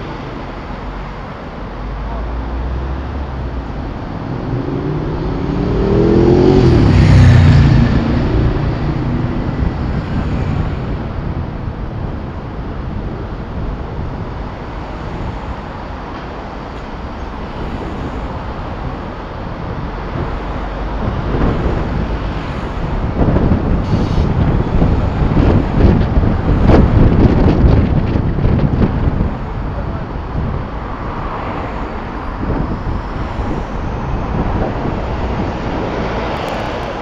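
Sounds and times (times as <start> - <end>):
road noise: 0.0 - 37.0
wind rumble on microphone: 0.0 - 37.0
engine accelerating: 4.2 - 10.2.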